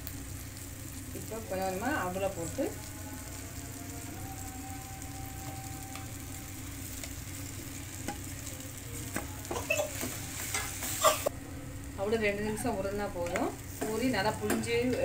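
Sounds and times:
oil sizzling in a pan: 0.0 - 15.0.

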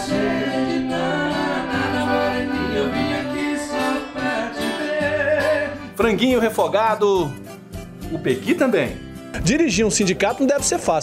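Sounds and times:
man singing: 0.0 - 6.4
accordion chords: 0.0 - 11.0
acoustic guitar: 0.0 - 11.0.

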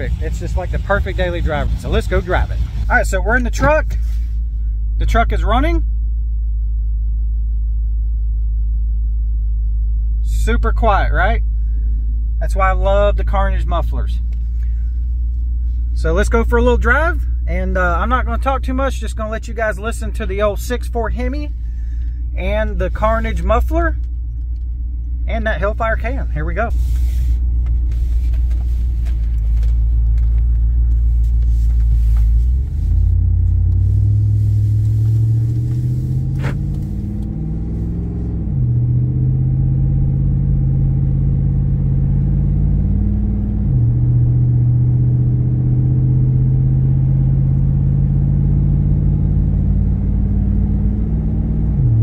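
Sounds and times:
car engine accelerating through gears: 26.6 - 52.0.

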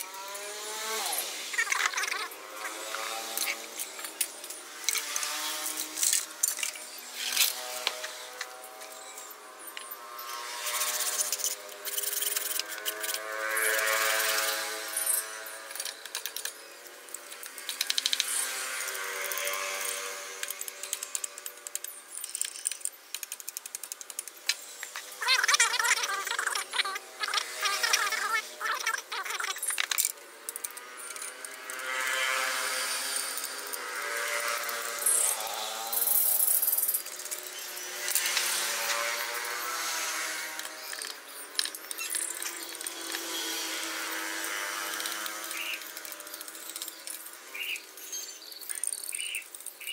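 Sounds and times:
machete scraping bamboo: 0.2 - 9.1, 9.9 - 16.7, 28.9 - 47.8.

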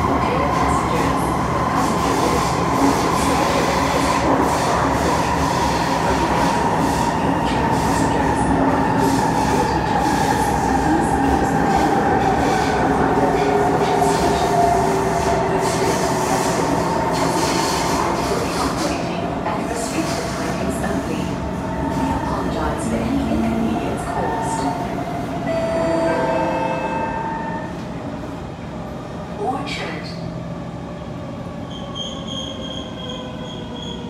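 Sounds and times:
train wheels rumbling on rail: 0.0 - 25.5.

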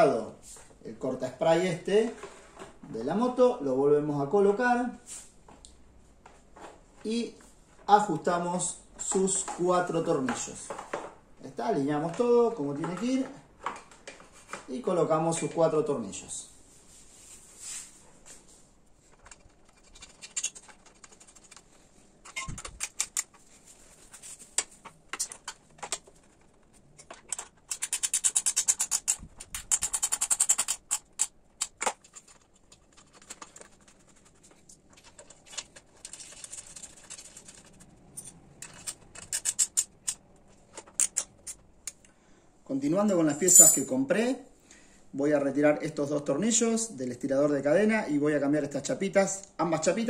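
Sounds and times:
hand tools and screws clicking: 19.2 - 23.4, 24.6 - 34.2, 34.8 - 42.1.

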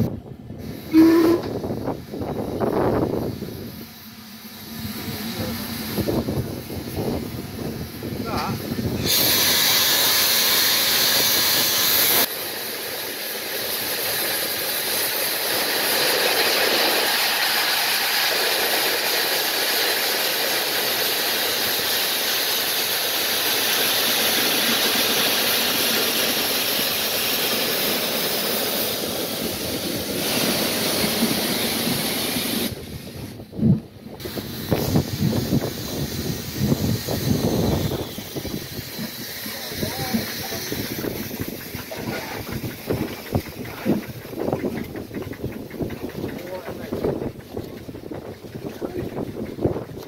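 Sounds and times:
steam hissing from locomotive: 0.0 - 50.0.

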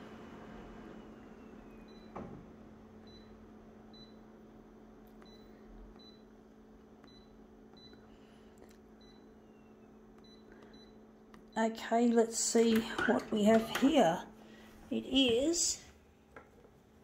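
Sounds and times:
copier faint hum: 0.0 - 17.0
copier touch screen beeps: 7.0 - 8.0, 9.0 - 11.0.

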